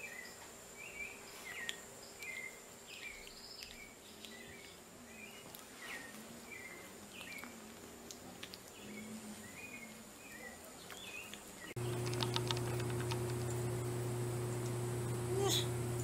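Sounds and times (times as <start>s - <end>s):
clicks: 11.8s - 13.7s
low hum: 11.8s - 16.0s.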